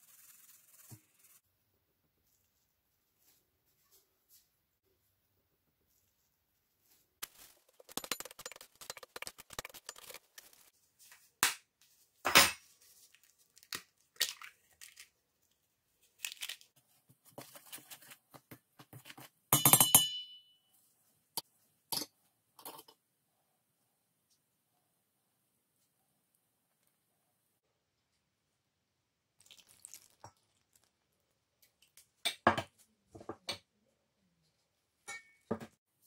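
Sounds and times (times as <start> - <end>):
eggshell cracking: 7.2 - 10.7, 29.4 - 31.0
spoon clinking on metal bowl: 7.8 - 10.5, 19.6 - 20.5.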